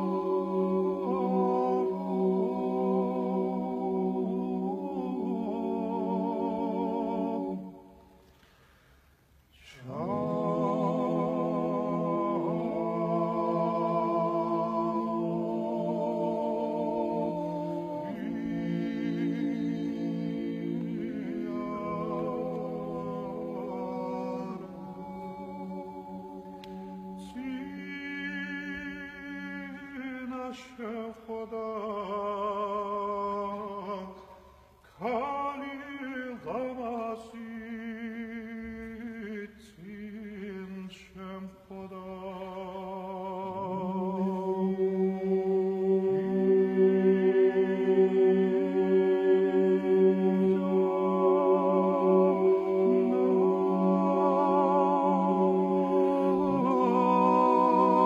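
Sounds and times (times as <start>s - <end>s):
men's chorus singing a cappella: 0.0s - 8.2s, 9.6s - 58.0s.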